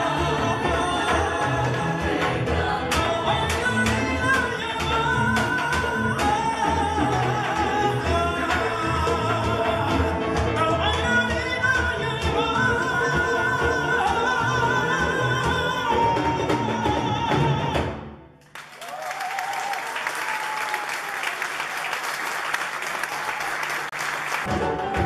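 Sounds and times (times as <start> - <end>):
person singing with live band: 0.0 - 18.1
audience applauding: 18.4 - 25.0.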